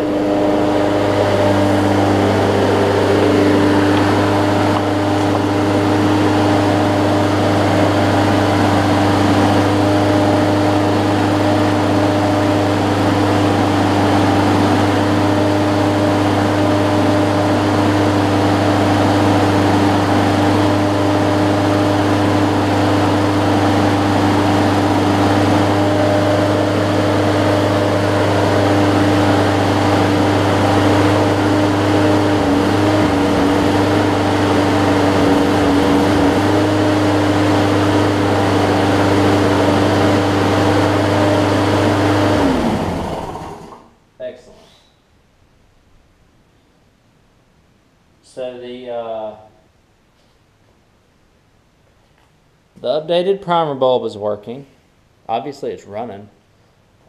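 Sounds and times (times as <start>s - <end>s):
lawn mower engine running: 0.0s - 43.9s.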